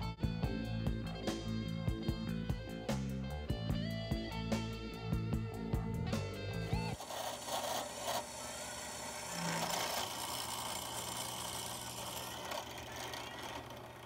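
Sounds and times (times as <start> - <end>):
drill press motor hum: 6.8 - 14.0
drill bit cutting steel: 7.0 - 14.0.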